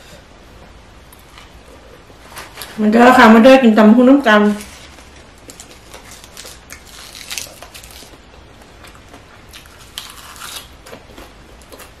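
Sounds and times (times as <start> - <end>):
spinach leaves crunching: 4.4 - 8.2, 8.8 - 12.0.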